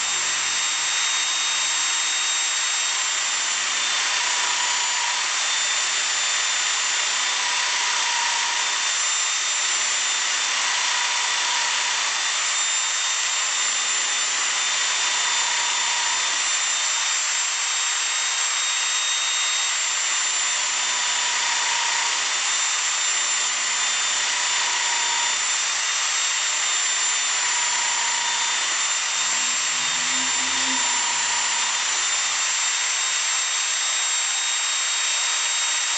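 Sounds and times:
spindle whine: 27.0s - 34.2s
milling cutter hissing: 27.2s - 33.0s.

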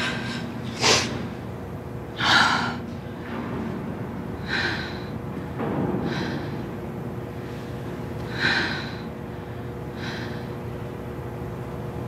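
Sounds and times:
woman gasping breaths: 4.4s - 5.2s, 6.0s - 6.7s, 8.3s - 10.6s.

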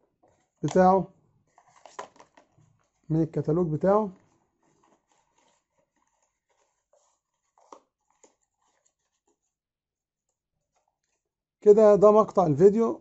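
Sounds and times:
cardboard box rustling: 4.1s - 9.5s.

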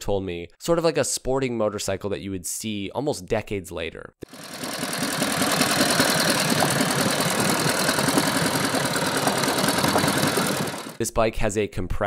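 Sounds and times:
motorcycle engine running: 4.2s - 11.0s.

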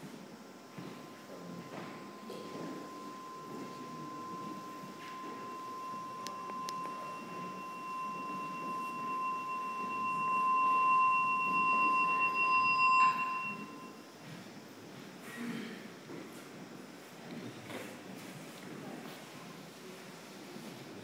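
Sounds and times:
fainter higher tone: 0.7s - 14.0s
pure ringing tone: 0.7s - 14.1s.

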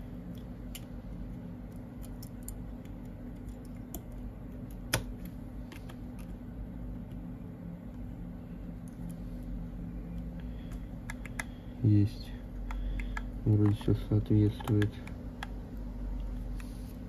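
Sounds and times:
steady low hum: 0.0s - 17.0s
small clicks and taps: 10.4s - 11.6s, 12.6s - 15.6s.

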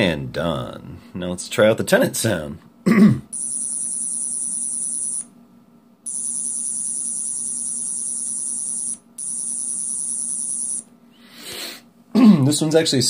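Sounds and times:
high buzzing whine from small speaker: 3.4s - 5.3s, 6.0s - 10.9s.

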